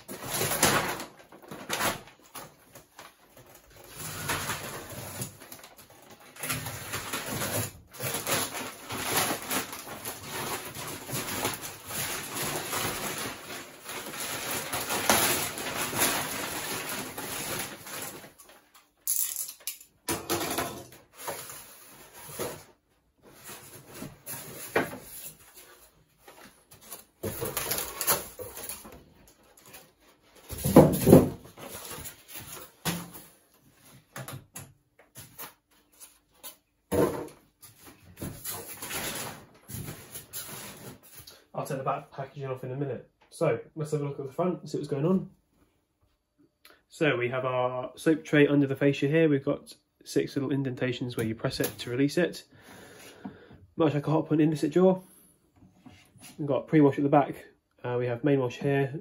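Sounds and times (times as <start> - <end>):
plastic wrapping crinkling: 0.0 - 19.0, 21.0 - 34.1, 37.4 - 41.5.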